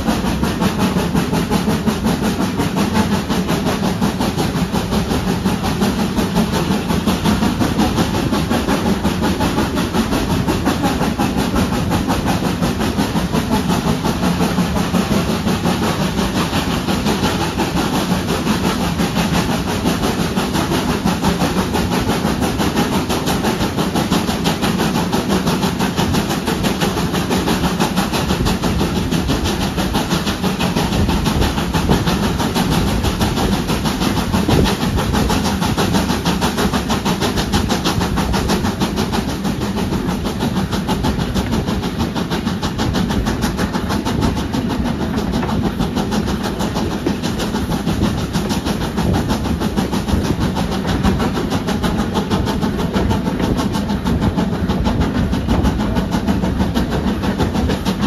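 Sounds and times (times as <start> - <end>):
train wheels on rails: 0.0 - 58.0
wind blowing across microphone: 25.9 - 58.0.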